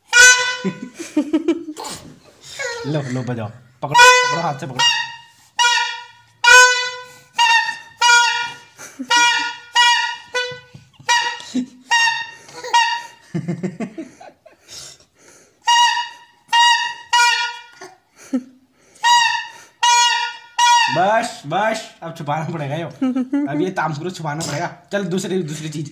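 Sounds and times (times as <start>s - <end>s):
plastic toy horn honks: 0.0s - 0.9s, 3.9s - 13.2s, 15.7s - 17.9s, 19.0s - 21.2s.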